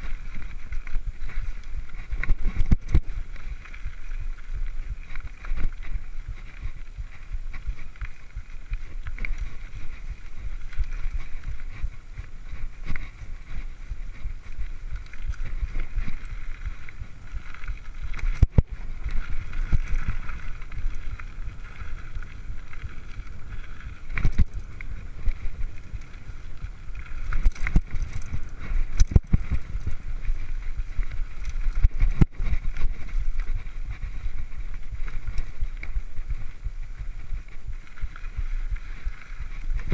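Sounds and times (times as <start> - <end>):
bicycle tyres on dirt trail: 0.0 - 39.9
bike knocking and rattling: 0.0 - 39.9
wind rushing on microphone: 0.0 - 39.9.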